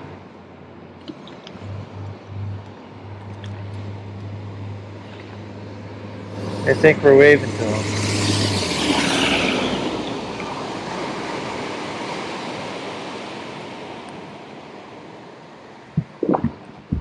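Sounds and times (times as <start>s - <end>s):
low engine hum: 1.0s - 8.6s, 15.9s - 17.0s.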